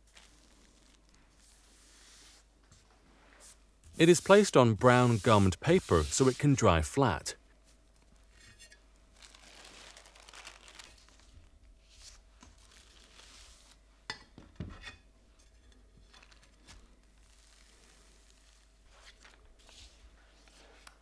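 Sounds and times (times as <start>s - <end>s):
paper rustling and crinkling: 0.0s - 1.8s, 9.2s - 13.8s, 16.1s - 20.9s.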